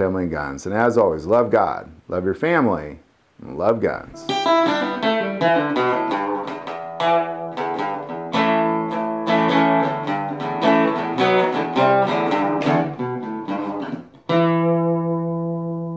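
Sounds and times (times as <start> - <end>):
acoustic guitar strumming: 4.1 - 15.9.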